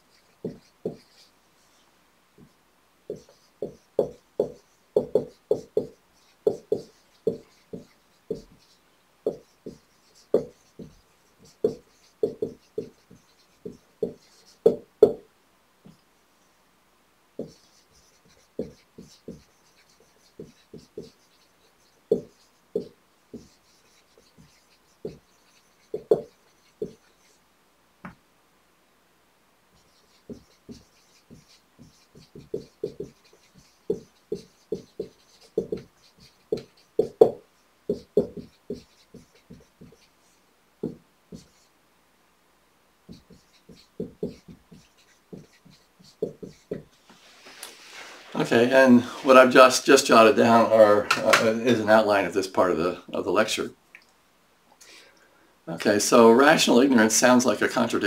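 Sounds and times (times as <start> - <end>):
marker squeaking on whiteboard: 0.0 - 1.8, 2.4 - 15.2, 17.4 - 27.4, 29.7 - 41.8, 43.1 - 48.1.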